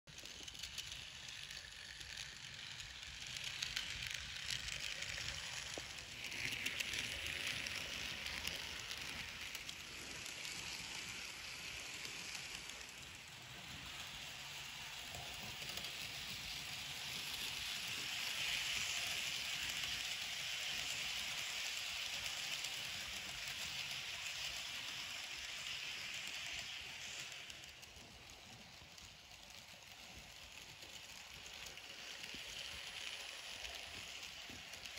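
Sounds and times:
model train wheels rattling on rail: 0.1s - 34.9s.

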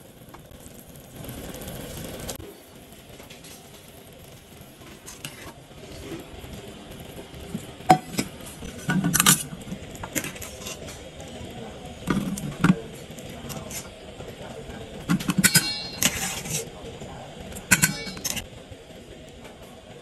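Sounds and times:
wire strainer clinking on steel bowl: 15.3s - 16.4s, 17.7s - 18.4s.

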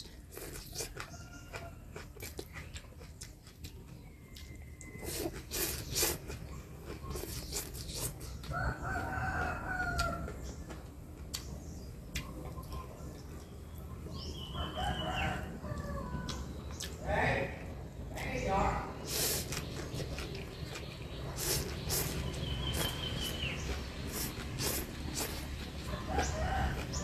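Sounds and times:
slurping noodles: 5.0s - 6.4s, 19.0s - 20.4s, 21.4s - 25.6s
rooster crowing: 8.4s - 10.4s, 14.4s - 16.6s, 25.8s - 27.0s.

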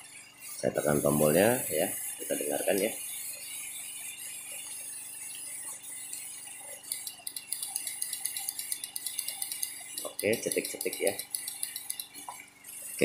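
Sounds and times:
relay clicking: 6.9s - 12.2s.

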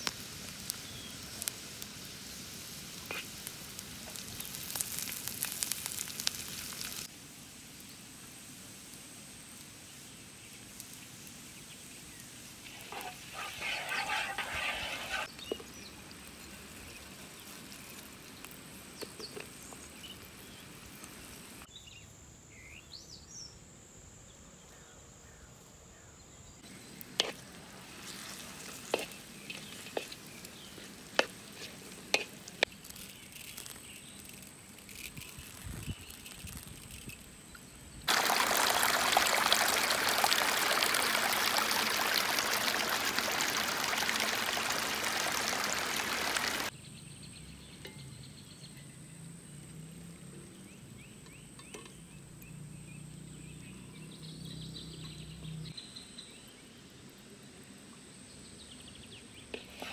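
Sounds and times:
food sizzling in wok: 0.0s - 21.7s, 26.6s - 37.3s, 38.0s - 46.8s, 59.5s - 59.9s
wooden spoon stirring: 12.6s - 15.8s, 26.8s - 35.6s.

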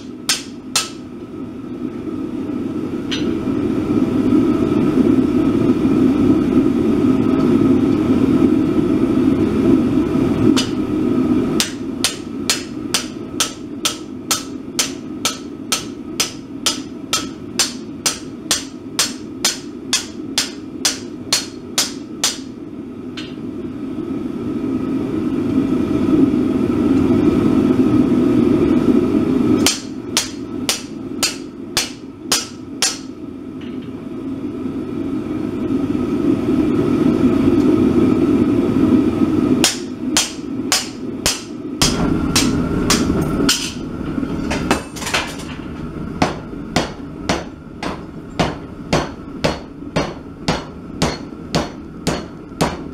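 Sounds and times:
hammer striking steel on anvil: 0.0s - 1.1s, 3.1s - 3.4s, 10.5s - 10.9s, 11.6s - 22.6s, 29.6s - 33.8s, 39.6s - 43.9s, 46.2s - 52.9s.

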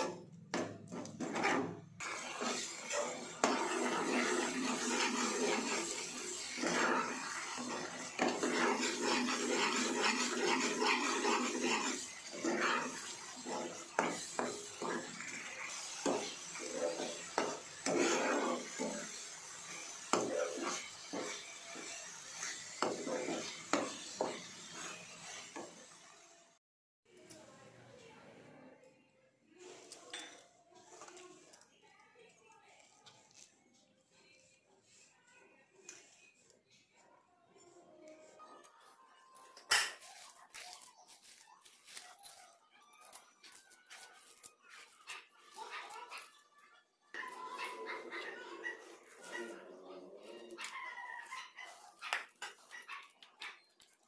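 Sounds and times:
metal spoon scraping frying pan: 0.0s - 26.0s, 39.5s - 42.4s.

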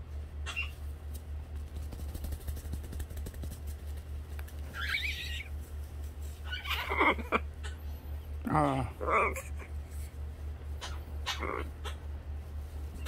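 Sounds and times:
steady low hum: 0.0s - 13.0s
feathers rustling: 0.1s - 7.2s
macaw squawking: 0.4s - 0.8s, 4.7s - 5.5s, 10.8s - 12.1s.

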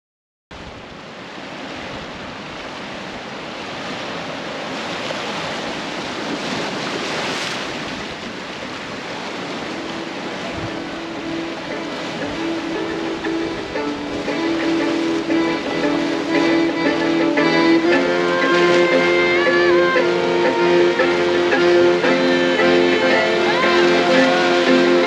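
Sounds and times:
surf breaking over rocks: 0.6s - 25.0s
faint plucked music: 9.8s - 25.0s.

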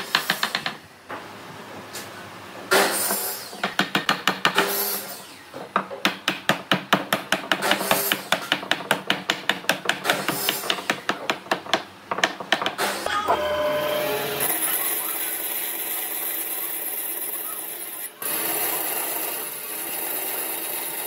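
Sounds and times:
rapid knocking on wood: 5.8s - 12.8s.

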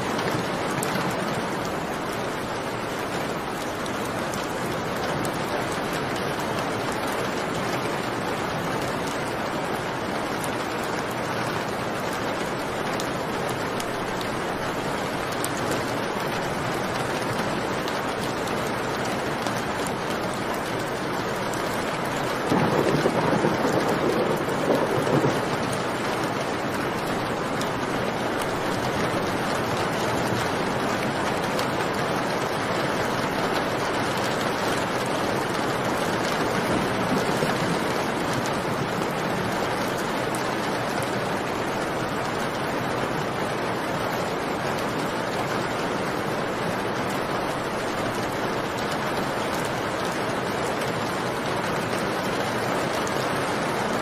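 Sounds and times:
heavy rain: 0.0s - 54.0s
thunder rumbling: 22.4s - 27.4s, 34.9s - 40.4s.

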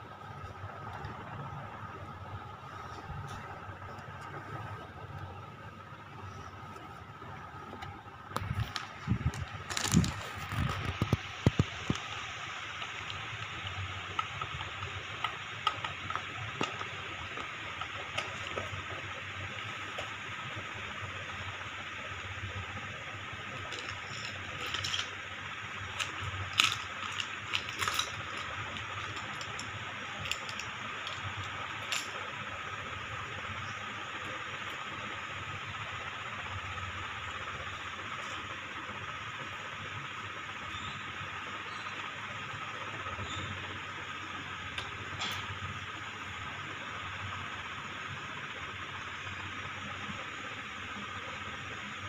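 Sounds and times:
room noise: 0.0s - 40.0s
plastic bag crinkling: 8.4s - 12.1s, 23.3s - 32.3s
small parts clicking: 23.4s - 32.4s.

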